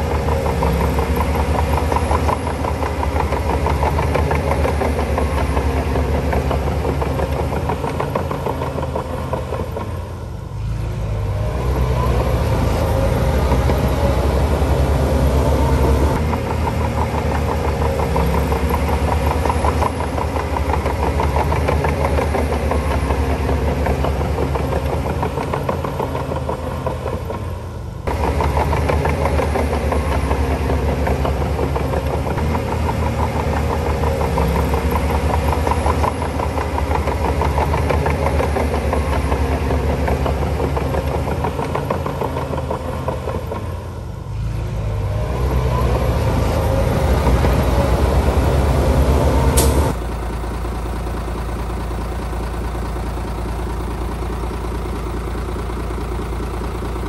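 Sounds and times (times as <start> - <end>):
bulldozer diesel engine running: 0.0 - 57.0.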